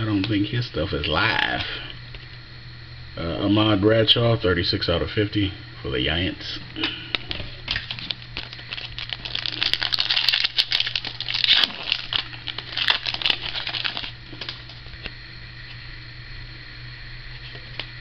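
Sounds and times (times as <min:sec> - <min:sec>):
plastic wrapper tearing and crinkling: 0:07.6 - 0:15.1.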